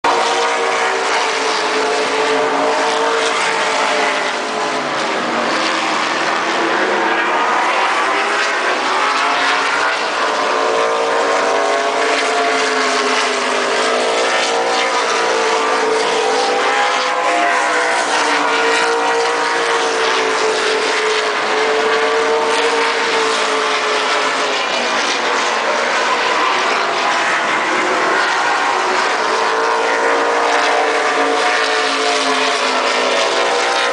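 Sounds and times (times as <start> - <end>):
race car engines revving: 0.0 - 33.9.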